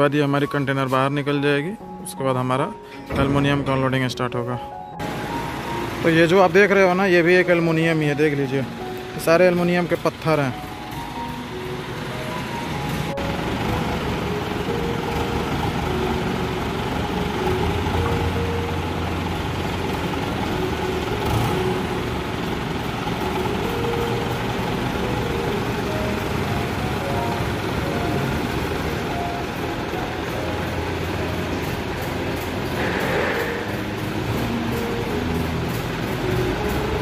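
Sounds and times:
forklift engine running: 0:04.8 - 0:37.0.

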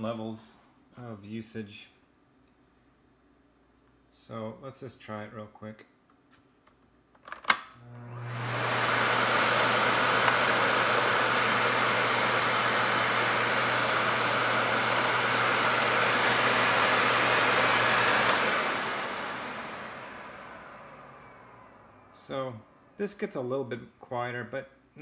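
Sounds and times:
vacuum cleaner motor running: 0:07.8 - 0:23.0
vacuum cleaner switch click: 0:10.1 - 0:10.7, 0:18.0 - 0:19.2.

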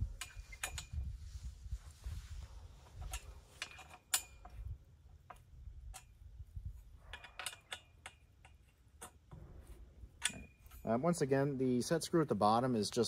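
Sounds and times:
wind rumble on microphone: 0:00.0 - 0:03.6, 0:04.3 - 0:07.4.

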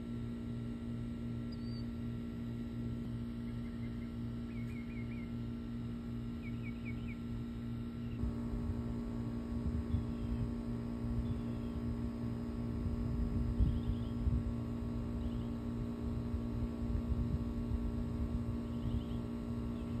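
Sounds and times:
low electrical hum: 0:00.0 - 0:20.0
faint high chirps: 0:01.5 - 0:01.9.

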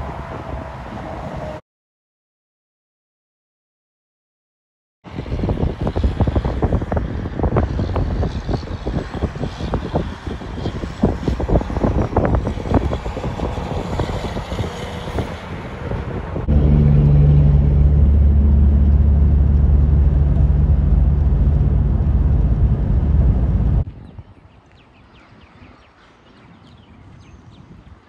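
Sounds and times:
engine and road noise drone: 0:00.0 - 0:01.6, 0:05.1 - 0:23.9
wind buffeting microphone: 0:05.1 - 0:28.0
truck engine driving past: 0:16.4 - 0:23.8.

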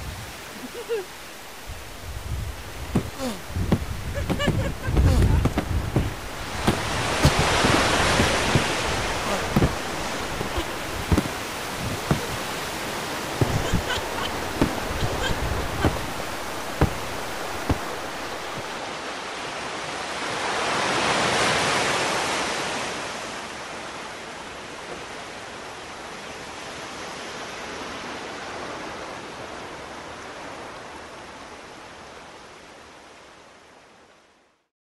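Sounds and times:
steady rushing noise: 0:01.1 - 0:18.8.

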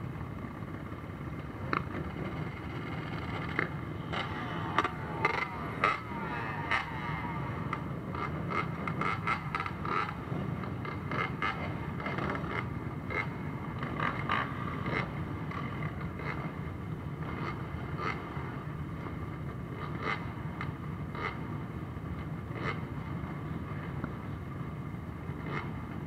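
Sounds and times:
quad and dirt-bike engines idling: 0:00.0 - 0:26.0.

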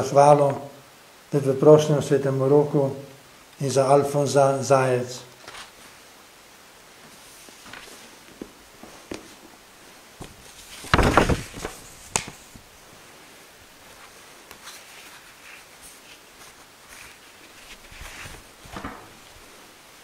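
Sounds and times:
cloth rustling: 0:07.0 - 0:19.8.

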